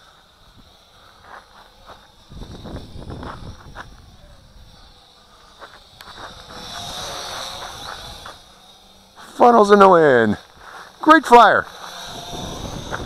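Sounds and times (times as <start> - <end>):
wind buffeting microphone: 2.1 - 5.0, 11.9 - 13.0.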